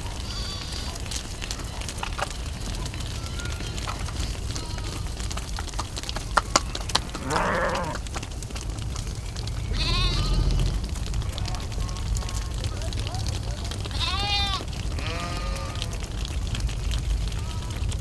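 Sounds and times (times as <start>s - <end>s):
sheep moving and grazing: 0.0s - 18.0s
sheep bleating: 0.1s - 1.9s, 2.8s - 5.3s, 6.7s - 8.1s, 9.7s - 10.8s, 13.8s - 16.1s, 17.3s - 17.9s.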